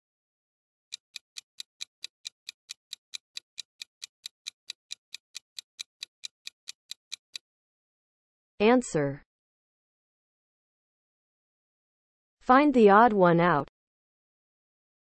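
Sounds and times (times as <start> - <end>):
clock ticking: 0.9 - 7.4.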